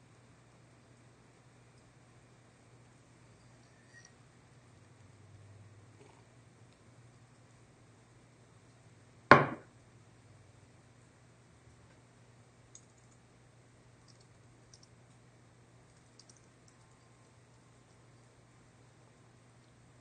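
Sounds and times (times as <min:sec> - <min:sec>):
low steady room hum: 0:00.0 - 0:20.0
sharp knock: 0:09.3 - 0:09.7
faint clicks: 0:12.7 - 0:13.2, 0:14.0 - 0:15.2, 0:15.9 - 0:18.0.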